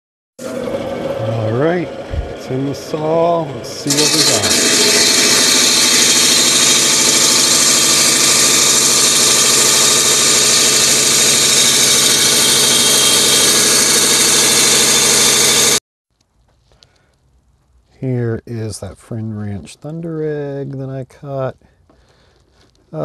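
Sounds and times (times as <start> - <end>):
rock saw cutting stone: 0.4 - 15.8.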